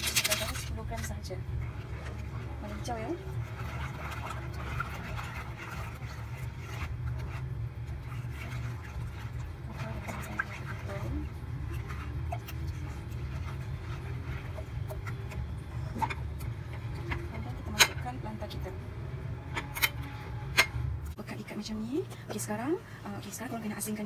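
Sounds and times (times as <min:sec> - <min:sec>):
steady low hum: 0:00.0 - 0:24.0
spoon stirring batter in a pan: 0:00.1 - 0:18.2.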